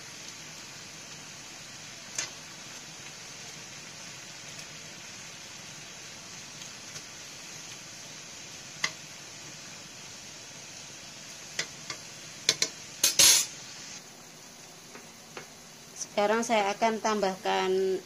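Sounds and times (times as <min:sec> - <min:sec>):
water boiling in a pan: 0:00.0 - 0:18.0
metal tongs tapping pan: 0:02.1 - 0:02.4, 0:08.8 - 0:09.0, 0:11.6 - 0:13.5.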